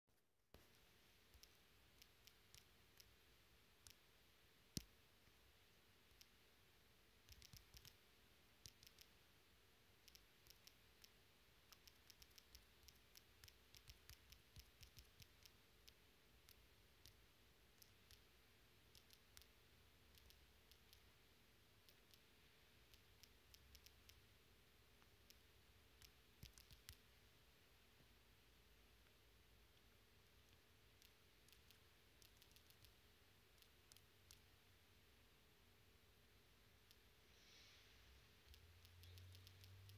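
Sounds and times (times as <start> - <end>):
typing on smartphone keyboard: 7.2 - 8.0, 8.6 - 9.2, 10.0 - 21.1, 21.8 - 24.3, 25.0 - 27.1, 30.4 - 34.5, 38.5 - 39.9.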